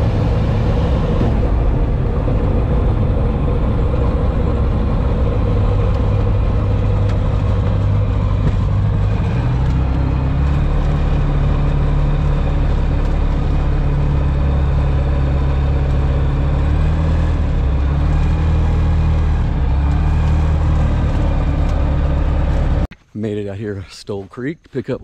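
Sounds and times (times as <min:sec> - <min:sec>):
light aircraft engine droning: 0:00.0 - 0:22.9.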